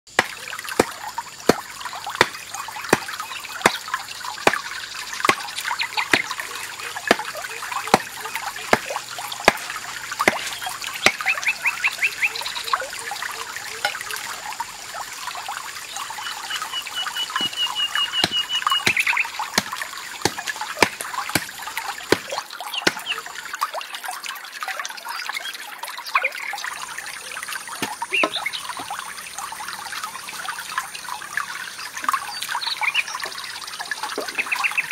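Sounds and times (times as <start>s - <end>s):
forest stream trickling: 0.1s - 34.9s
chirping trills: 16.0s - 19.4s.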